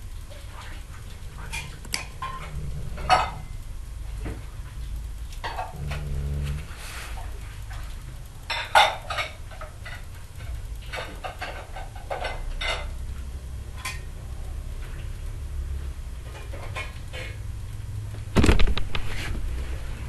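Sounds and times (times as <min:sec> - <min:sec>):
steady low hum: 0:00.0 - 0:20.0
hard objects clattering: 0:01.1 - 0:04.4.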